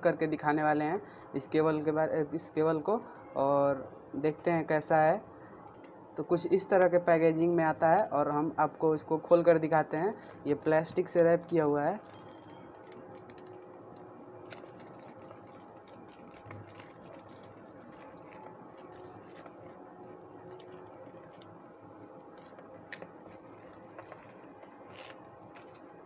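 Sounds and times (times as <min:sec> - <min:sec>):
faint steady hum: 0:00.0 - 0:26.0
plastic wrap crinkling: 0:11.9 - 0:26.0.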